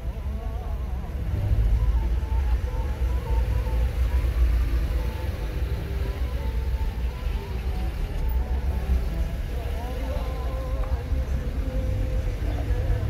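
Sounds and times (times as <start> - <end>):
car engine and road noise: 0.0 - 13.0.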